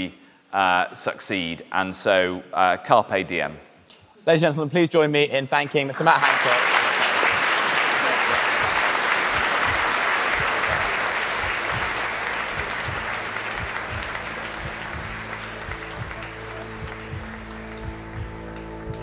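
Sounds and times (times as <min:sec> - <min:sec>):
audience applauding: 0:05.7 - 0:19.0
music with sustained notes: 0:10.8 - 0:19.0.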